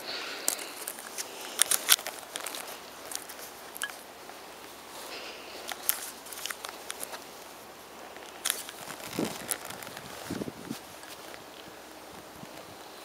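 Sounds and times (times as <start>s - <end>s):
footsteps on grass: 0.4s - 12.8s.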